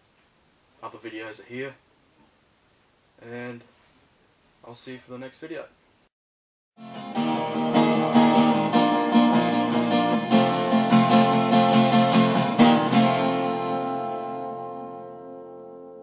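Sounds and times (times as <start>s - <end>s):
acoustic guitar strumming chords: 6.8s - 16.0s.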